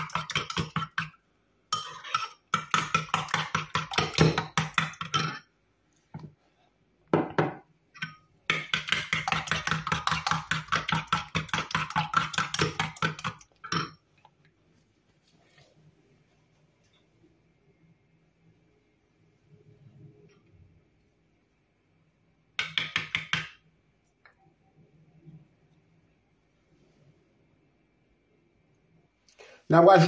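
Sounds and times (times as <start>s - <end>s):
spoon clinking against bowl: 0.0s - 5.5s.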